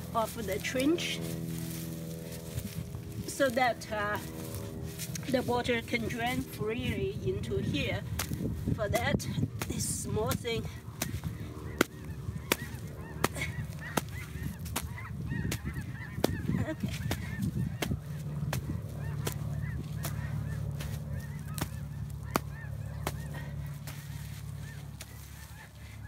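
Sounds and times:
hoe scraping wet soil: 0:00.0 - 0:06.8, 0:16.6 - 0:26.0
honking bird calls: 0:00.0 - 0:26.0
low steady hum: 0:00.0 - 0:26.0.

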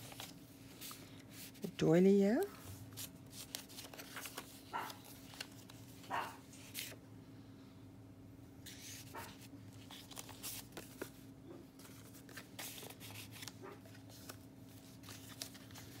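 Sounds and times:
paper rustling: 0:00.0 - 0:01.7, 0:02.6 - 0:07.0, 0:08.6 - 0:16.0
faint steady hum: 0:00.0 - 0:16.0.

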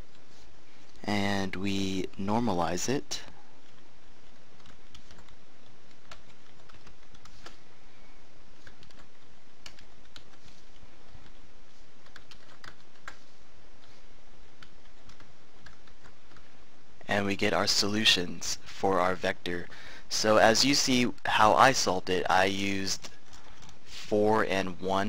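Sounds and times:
steady background hiss: 0:00.0 - 0:25.0
computer keyboard keystrokes: 0:04.6 - 0:07.6, 0:12.0 - 0:13.2.

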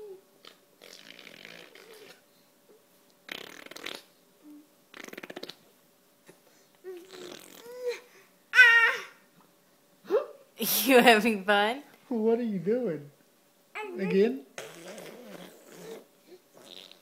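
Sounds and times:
baby vocalizing: 0:00.0 - 0:02.2, 0:06.8 - 0:09.2, 0:13.8 - 0:17.0
baby blowing raspberries: 0:00.4 - 0:02.2, 0:03.3 - 0:04.1, 0:04.9 - 0:05.6, 0:06.9 - 0:08.0, 0:14.6 - 0:17.0
baby squealing: 0:08.6 - 0:09.2.

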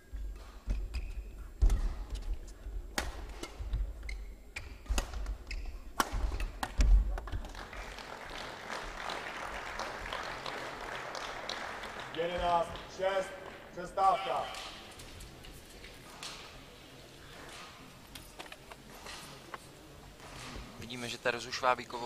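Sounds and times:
racket striking shuttlecock: 0:04.6 - 0:06.9
crowd applauding: 0:07.4 - 0:13.7.

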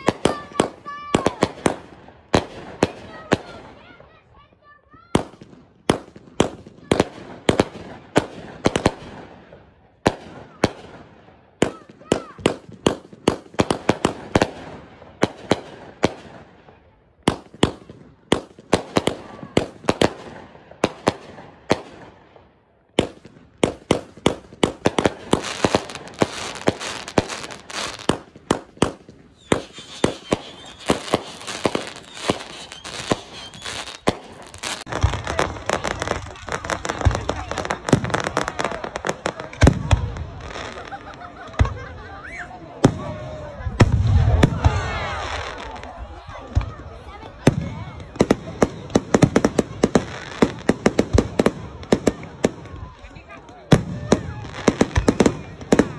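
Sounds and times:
fireworks bangs: 0:00.0 - 0:55.9
crackling sparks: 0:23.0 - 0:39.6.

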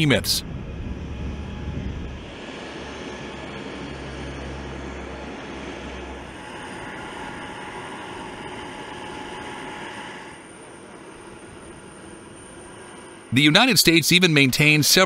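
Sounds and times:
aircraft engine noise: 0:00.0 - 0:15.0
faint steady whine: 0:00.0 - 0:15.0
low rumble: 0:00.4 - 0:02.4.

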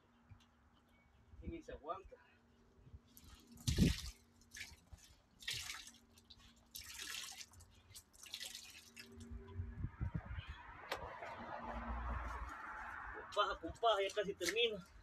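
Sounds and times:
water splashing on pool liner: 0:03.1 - 0:09.3.

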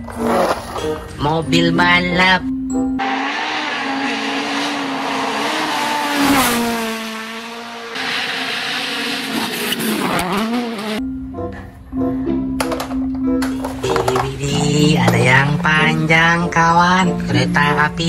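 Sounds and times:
gravel spray and tyre noise: 0:00.0 - 0:01.1, 0:03.0 - 0:11.0
rally car engine revving: 0:03.0 - 0:11.0.

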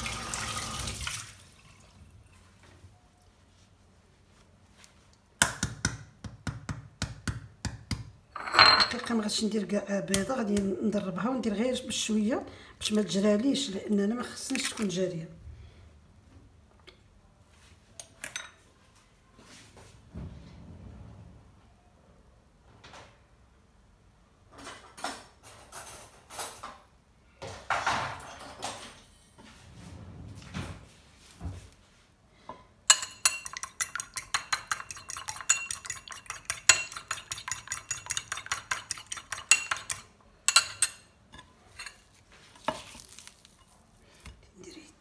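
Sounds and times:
fork clinking on ceramic dish: 0:32.9 - 0:42.8.

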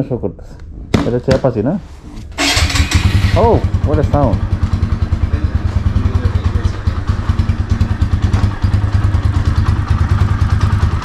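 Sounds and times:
motorcycle engine idling: 0:02.4 - 0:11.0.

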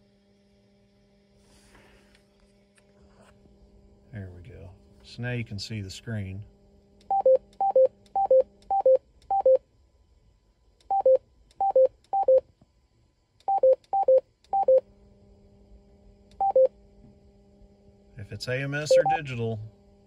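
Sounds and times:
radio standby hum: 0:18.2 - 0:19.7
radio two-note beeps: 0:18.8 - 0:19.4.

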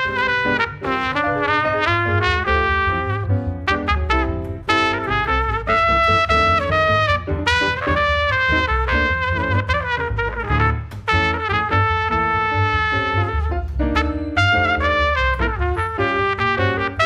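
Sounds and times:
piano: 0:00.0 - 0:17.0
trumpet melody: 0:00.0 - 0:17.0
upright bass plucking: 0:02.0 - 0:15.8.

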